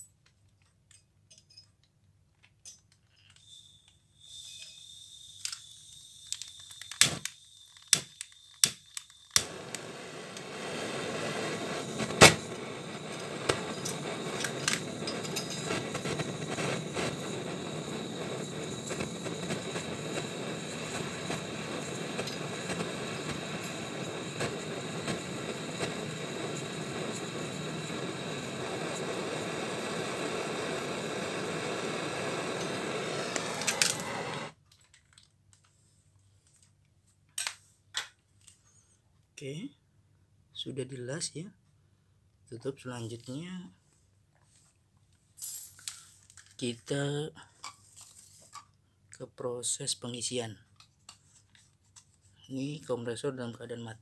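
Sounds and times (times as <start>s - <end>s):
torch flame hissing: 4.2s - 34.6s
gas torch igniter clicking: 6.3s - 34.6s.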